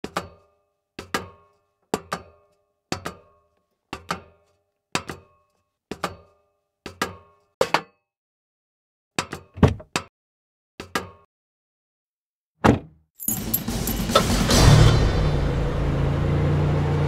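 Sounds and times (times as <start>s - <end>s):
sharp percussive strikes ringing: 13.3s - 14.4s.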